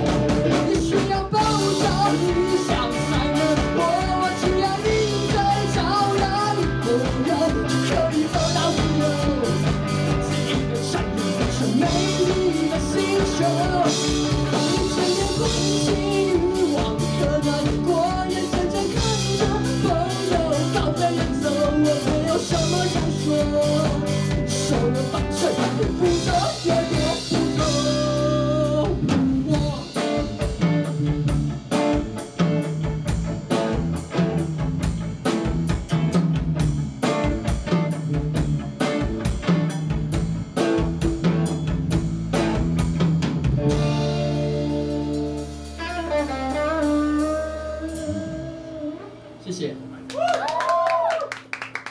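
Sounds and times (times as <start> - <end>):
person singing: 0.0 - 31.4, 44.0 - 49.4
distorted electric guitars: 0.0 - 50.9
bass guitar: 0.0 - 51.9
drum kit: 0.0 - 51.9.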